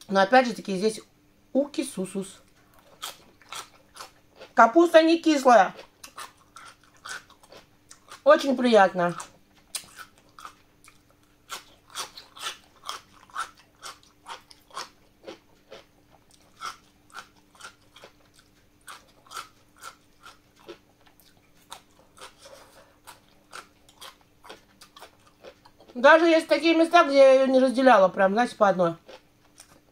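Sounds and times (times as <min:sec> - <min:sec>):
person chewing crunchy food: 0:02.4 - 0:04.6, 0:05.7 - 0:08.3, 0:09.0 - 0:26.0, 0:29.0 - 0:29.9.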